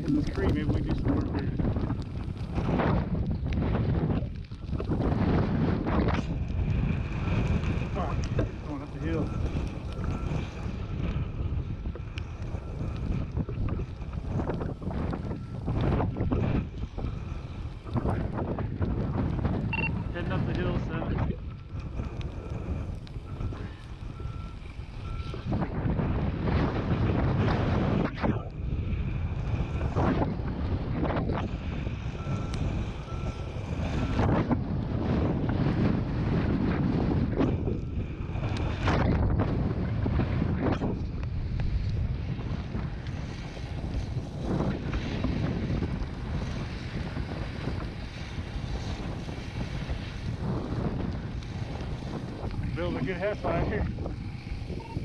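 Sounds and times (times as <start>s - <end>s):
truck engine rumbling: 0.0s - 55.0s
wind on microphone: 0.0s - 55.0s
short electronic beeps: 19.7s - 20.1s, 54.8s - 55.0s.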